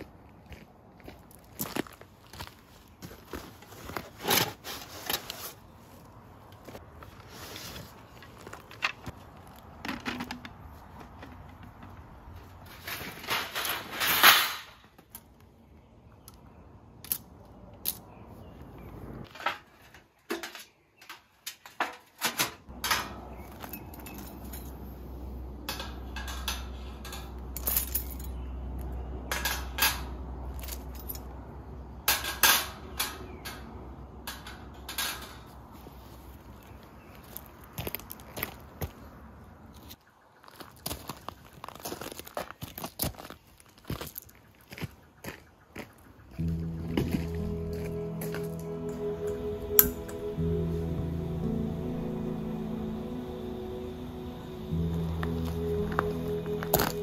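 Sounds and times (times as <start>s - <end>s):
metal fire pit assembled: 9.8s - 15.2s, 19.2s - 31.4s, 32.0s - 35.8s, 46.4s - 50.8s
low steady rumble: 22.7s - 34.9s, 46.4s - 57.0s.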